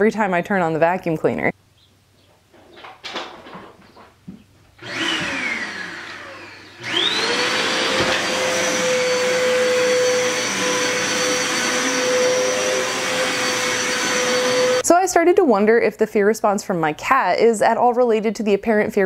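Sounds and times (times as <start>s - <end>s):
vacuum cleaner whine: 4.8s - 14.9s.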